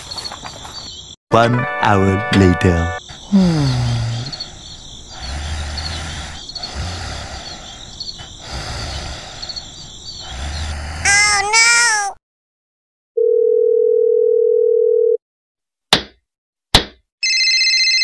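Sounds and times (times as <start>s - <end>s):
steady outdoor noise: 3.0s - 11.5s.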